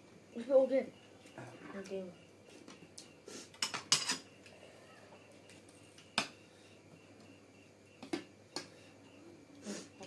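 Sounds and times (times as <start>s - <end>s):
tableware clicks: 3.6s - 4.3s.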